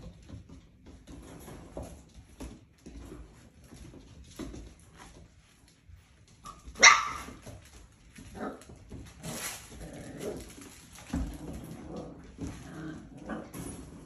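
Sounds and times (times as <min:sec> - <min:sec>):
puppies barking: 0:06.8 - 0:07.4.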